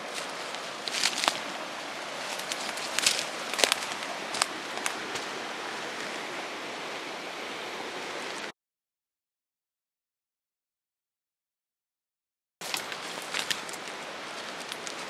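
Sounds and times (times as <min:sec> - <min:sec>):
footsteps on dry leaves and twigs: 0:00.0 - 0:06.4, 0:12.6 - 0:15.0
rushing mountain river: 0:00.0 - 0:08.5, 0:12.6 - 0:15.0.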